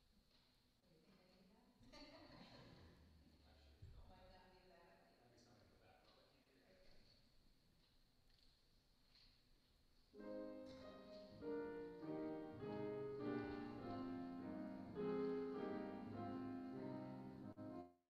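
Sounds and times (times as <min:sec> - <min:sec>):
grand piano playing chords: 0:10.2 - 0:18.0.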